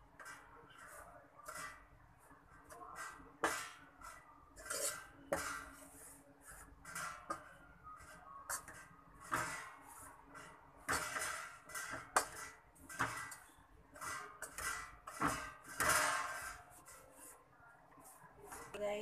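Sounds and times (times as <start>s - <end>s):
spoon scraping metal pan: 2.6s - 17.4s.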